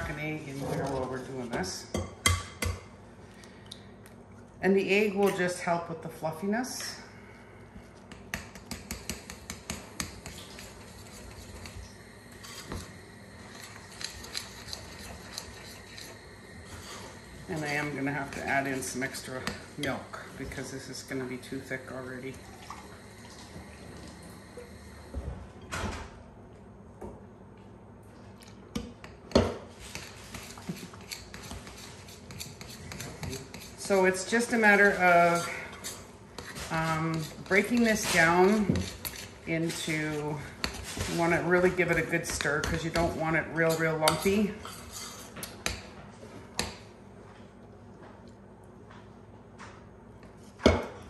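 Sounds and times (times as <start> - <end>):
spoon stirring batter in bowl: 7.9 - 22.4, 28.8 - 45.9.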